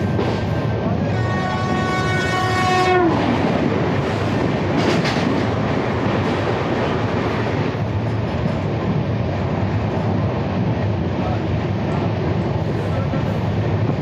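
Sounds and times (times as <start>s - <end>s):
clattering train wheels: 0.0s - 10.3s
passenger train rushing past: 0.0s - 14.0s
train horn: 1.0s - 3.5s.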